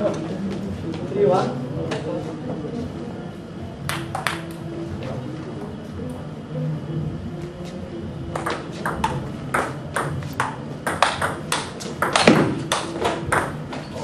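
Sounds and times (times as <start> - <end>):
table tennis ball clicking: 8.4 - 13.5.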